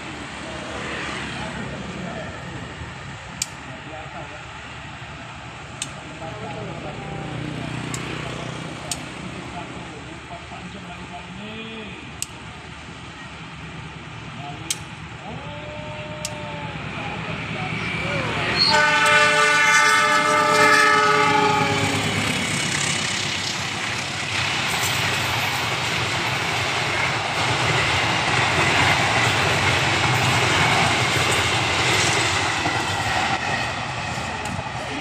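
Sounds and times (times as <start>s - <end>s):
train coaches rushing and clattering: 0.0s - 35.0s
train horn: 18.5s - 22.2s.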